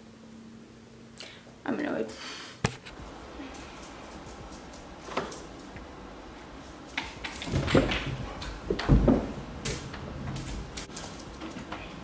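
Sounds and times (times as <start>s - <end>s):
chair knocking and thumping: 7.1s - 11.8s.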